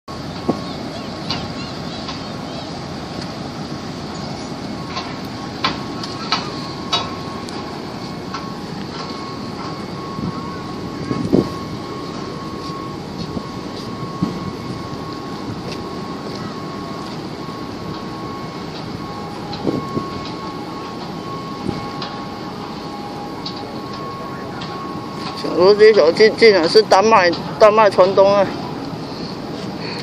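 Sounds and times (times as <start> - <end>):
engine drone: 0.0 - 30.0
faint steady whine: 0.1 - 30.0
wind on microphone: 10.2 - 11.8.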